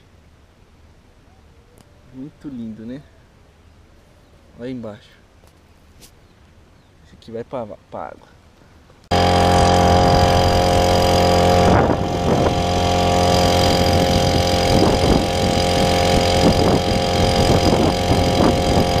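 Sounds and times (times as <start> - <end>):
outboard motor running: 9.1 - 19.0.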